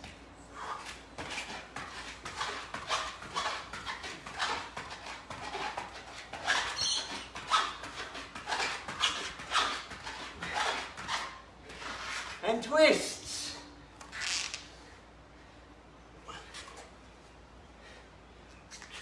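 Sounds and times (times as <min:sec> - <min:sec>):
shoes scuffing on exercise mat: 0:00.0 - 0:12.4.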